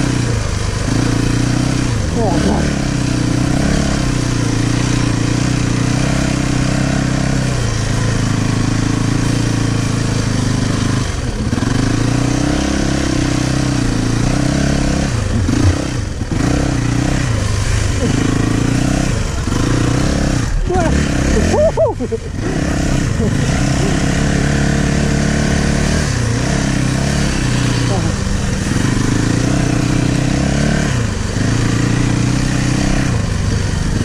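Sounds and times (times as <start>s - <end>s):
motocross bike engine revving: 0.0s - 34.0s.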